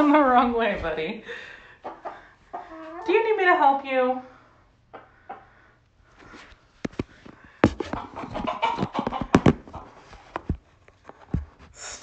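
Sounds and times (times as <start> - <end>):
rustling and scuffling: 6.1 - 11.8
sharp knocks and taps: 6.9 - 8.0, 8.8 - 9.7.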